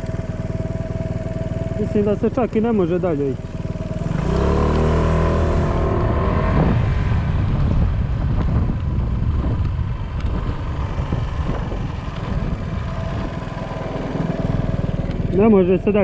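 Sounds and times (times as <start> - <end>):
motor scooter engine: 0.0 - 16.0
wind on microphone: 5.2 - 14.2.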